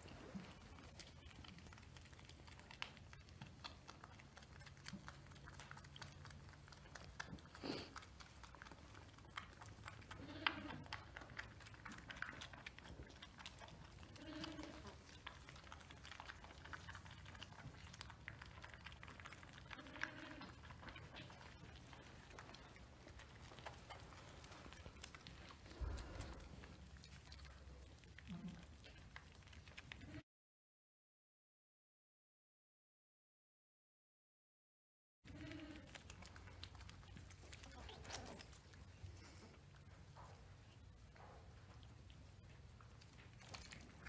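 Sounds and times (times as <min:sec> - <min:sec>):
wet licking clicks: 0:00.4 - 0:30.1, 0:35.8 - 0:44.0
sheep bleating softly: 0:10.2 - 0:10.9, 0:14.0 - 0:15.0, 0:19.8 - 0:20.6, 0:35.3 - 0:35.9.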